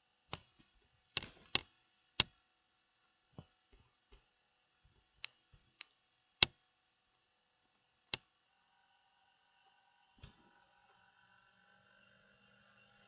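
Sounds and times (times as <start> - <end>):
computer mouse clicking: 0.3 - 2.4.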